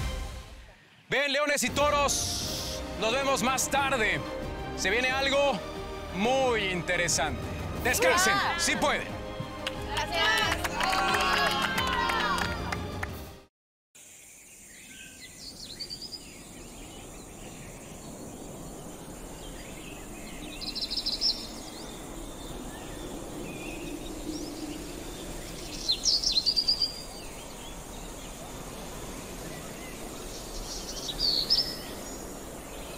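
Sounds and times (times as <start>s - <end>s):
steady background hiss: 14.0s - 32.9s
high rapid bird chirps: 15.4s - 28.5s.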